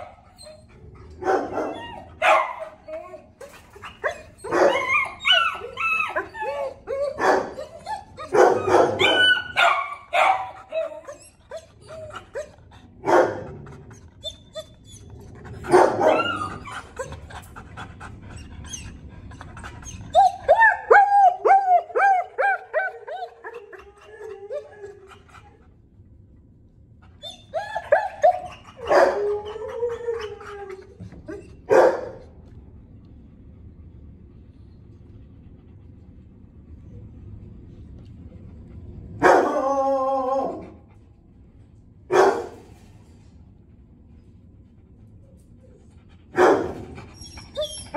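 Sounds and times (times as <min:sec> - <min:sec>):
dog whining: 0:00.0 - 0:12.9, 0:13.5 - 0:25.7, 0:27.0 - 0:31.7, 0:46.8 - 0:47.9
dogs barking: 0:01.2 - 0:02.9, 0:04.0 - 0:06.6, 0:07.2 - 0:10.9, 0:13.0 - 0:13.7, 0:15.5 - 0:16.6, 0:27.6 - 0:29.4, 0:31.7 - 0:32.2, 0:42.1 - 0:42.6, 0:46.3 - 0:46.9
dog yipping: 0:01.3 - 0:12.5, 0:15.7 - 0:17.1, 0:46.4 - 0:47.9.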